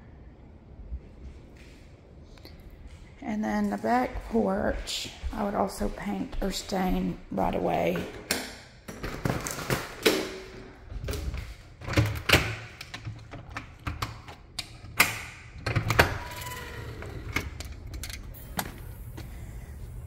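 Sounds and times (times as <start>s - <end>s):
door hardware clicking and thumping: 11.8s - 16.2s.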